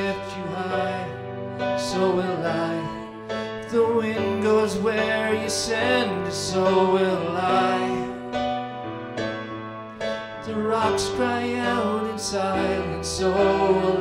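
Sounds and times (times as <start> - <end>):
digital piano chords: 0.0 - 14.0
woman and man singing: 1.8 - 8.2, 10.5 - 14.0.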